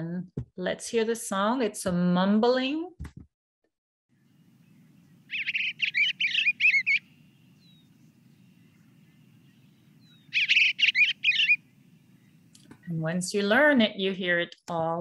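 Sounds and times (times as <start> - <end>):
bluebird song: 4.1 - 12.9
faint low hum: 4.2 - 13.2.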